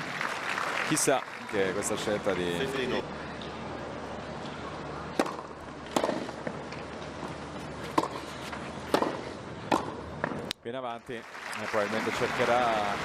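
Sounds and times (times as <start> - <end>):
racket hitting tennis ball: 5.1 - 10.5.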